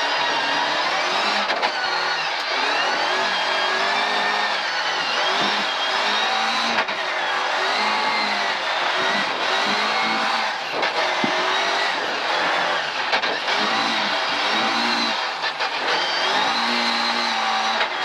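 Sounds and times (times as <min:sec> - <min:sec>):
rally car engine under load: 0:00.0 - 0:18.0.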